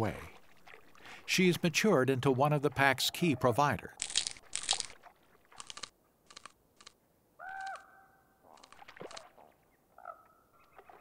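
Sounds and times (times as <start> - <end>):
wolves chewing and ripping carcass: 4.0 - 6.5.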